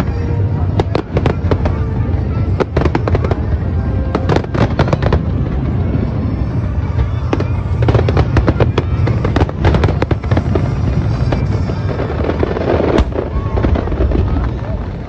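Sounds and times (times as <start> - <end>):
fireworks cracking: 0.0 - 15.0
low fireworks rumble: 0.0 - 15.0.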